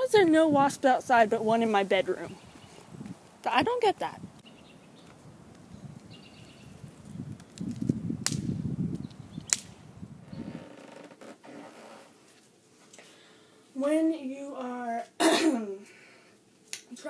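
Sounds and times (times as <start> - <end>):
stick cracking: 7.4 - 9.8.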